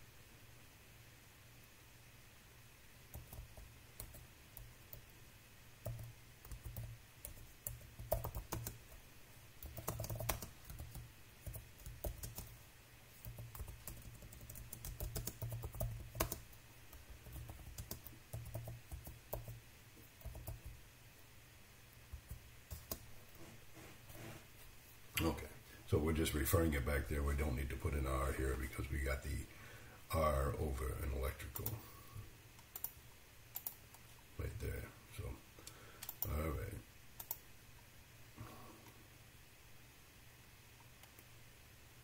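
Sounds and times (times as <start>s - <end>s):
computer keyboard typing: 3.1s - 5.1s, 5.8s - 9.0s, 9.6s - 12.6s, 13.2s - 19.6s, 20.2s - 20.8s, 22.1s - 23.0s, 32.7s - 33.8s, 36.0s - 36.4s, 37.2s - 37.4s.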